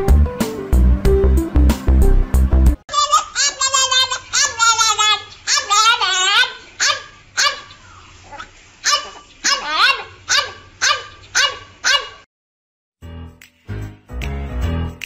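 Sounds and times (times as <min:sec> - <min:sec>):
music: 0:00.0 - 0:02.8, 0:13.0 - 0:15.0
dog yelping: 0:03.0 - 0:12.3.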